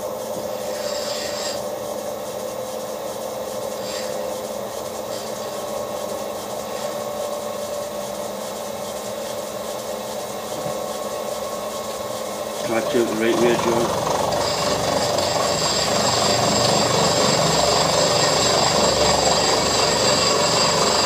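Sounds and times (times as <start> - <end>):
milling machine humming and whining: 0.0 - 21.0.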